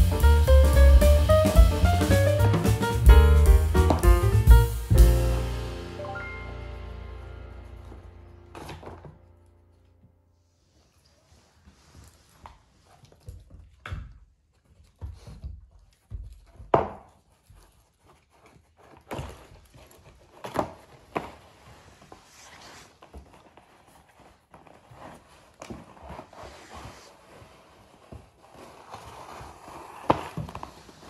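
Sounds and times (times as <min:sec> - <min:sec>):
carton knocking and scraping on floor: 0:00.7 - 0:04.5, 0:28.1 - 0:31.0.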